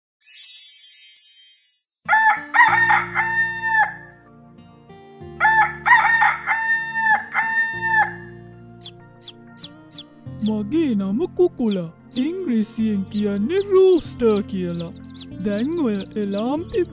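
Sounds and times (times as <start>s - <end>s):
sparkling chime: 0.2s - 2.1s
rooster crowing: 2.1s - 4.2s, 5.4s - 8.3s.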